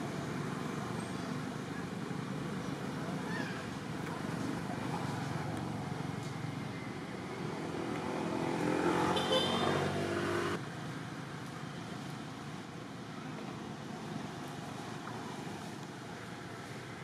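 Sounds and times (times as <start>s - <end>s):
steady outdoor rumble: 0.0s - 17.0s
vehicle engine passing: 7.3s - 10.6s.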